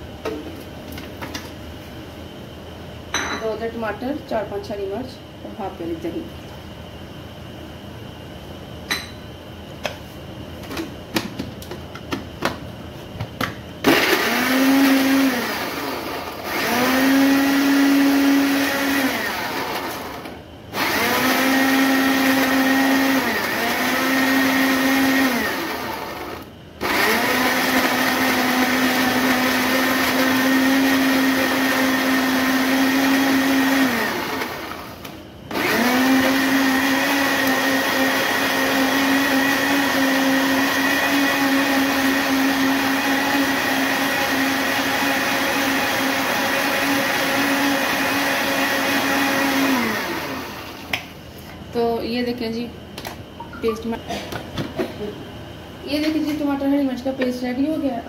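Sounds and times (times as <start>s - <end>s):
blender motor whining: 13.8s - 50.9s.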